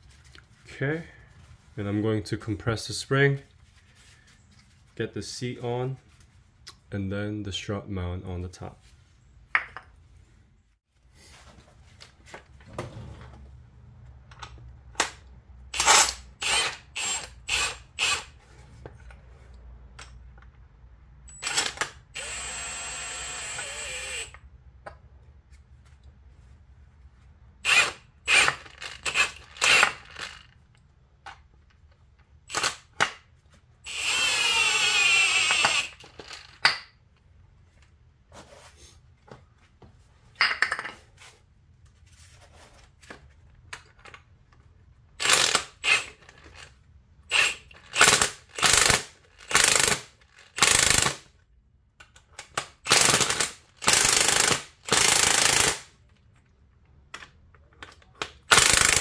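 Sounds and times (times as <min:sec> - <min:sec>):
power tool whirring in bursts: 0:21.4 - 0:24.3.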